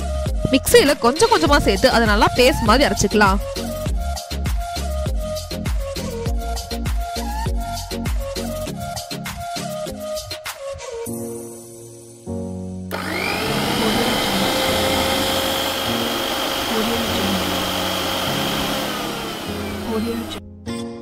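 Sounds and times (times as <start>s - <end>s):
mixer grinder motor whining: 12.9s - 20.4s.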